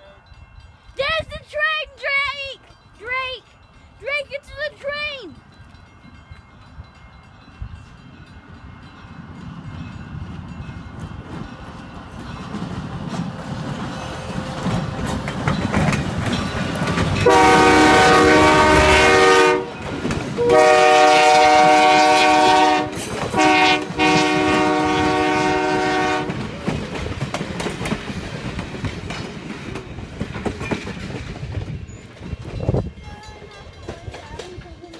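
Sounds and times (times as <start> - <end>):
train rumble and wheel clatter: 0.0 - 34.9
locomotive air horn blasts: 17.2 - 19.8, 20.4 - 26.4.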